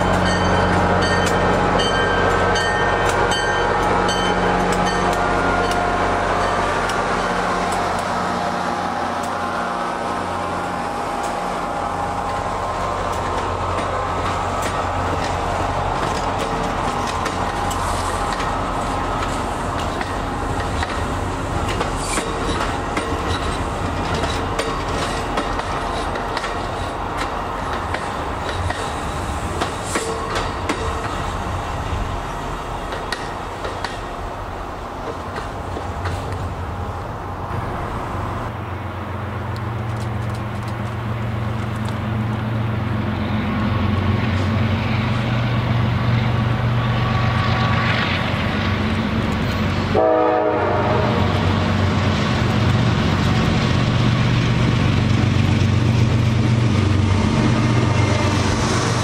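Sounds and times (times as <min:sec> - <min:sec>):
diesel locomotive engine drone: 0:00.0 - 0:59.0
train wheels rumbling and clicking: 0:00.0 - 0:59.0.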